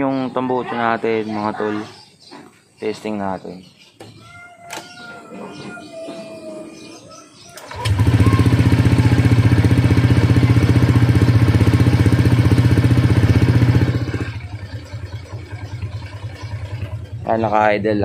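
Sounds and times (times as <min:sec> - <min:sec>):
scooter engine idling: 0:07.6 - 0:18.0.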